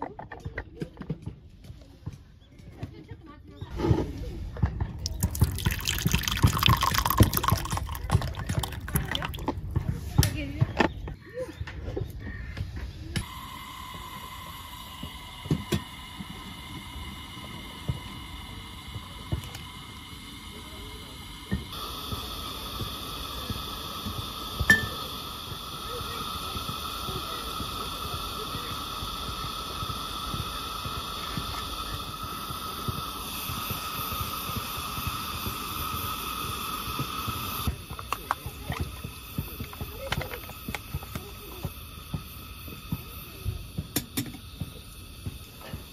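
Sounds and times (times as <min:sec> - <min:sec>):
camp stove burner running: 0:05.0 - 0:11.0, 0:12.3 - 0:45.9.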